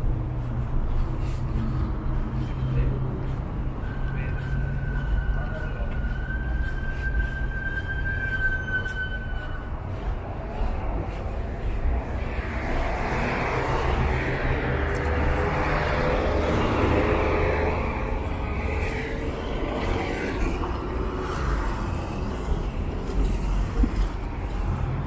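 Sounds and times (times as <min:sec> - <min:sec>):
low traffic rumble: 0:00.0 - 0:25.0
vehicle passing close by: 0:10.2 - 0:25.0.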